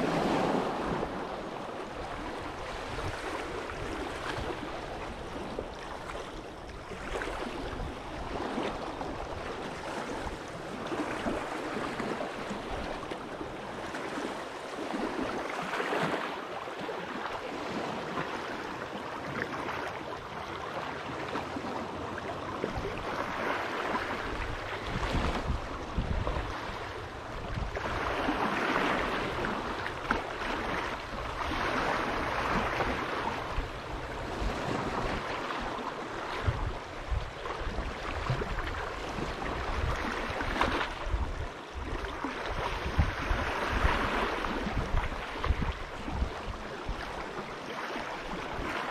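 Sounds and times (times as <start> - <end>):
waves crashing on shore: 0.0 - 48.9.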